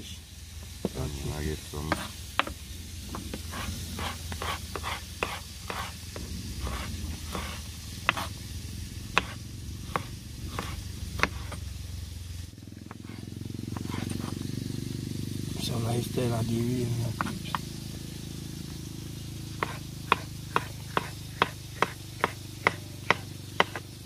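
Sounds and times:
low steady rumble: 0.0 - 24.0
knife slicing on plastic board: 3.3 - 5.9, 6.6 - 8.3, 9.2 - 11.6, 12.9 - 14.4.

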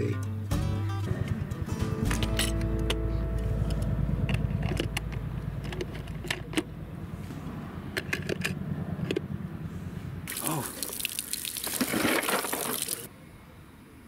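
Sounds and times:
low steady rumble: 0.3 - 10.7.

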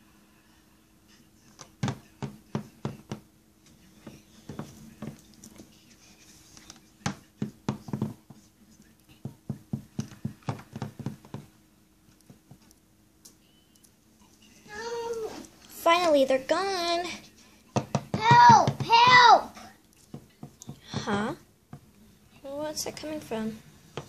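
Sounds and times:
plastic figures tapping on hard surface: 9.3 - 11.5.

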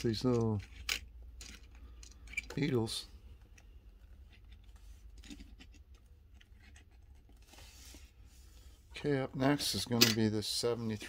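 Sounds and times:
toy cars clicking and scraping: 0.0 - 3.0
soft rustle: 6.4 - 9.6.

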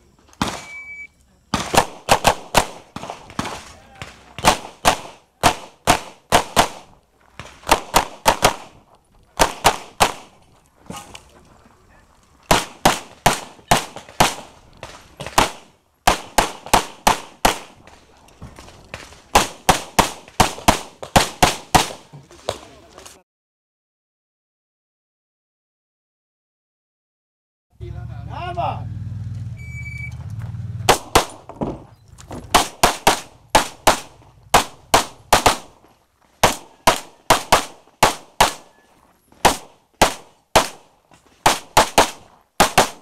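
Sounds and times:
rapid pistol fire: 1.5 - 8.8, 9.4 - 10.3, 12.5 - 17.9, 19.3 - 22.0, 30.8 - 31.5, 32.4 - 35.8, 36.4 - 38.7, 39.4 - 43.0.

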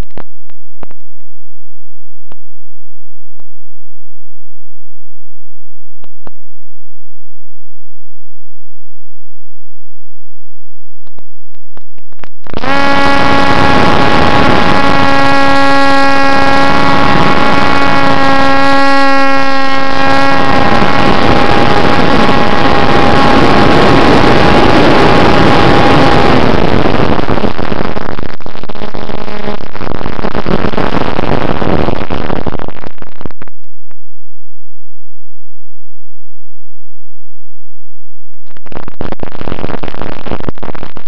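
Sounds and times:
wind rush on airframe: 12.5 - 33.4.

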